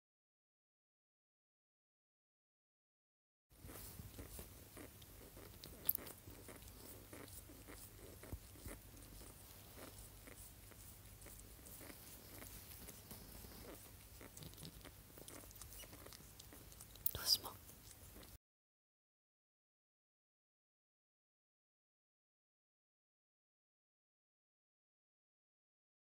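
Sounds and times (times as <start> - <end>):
low steady hum: 3.6 - 18.4.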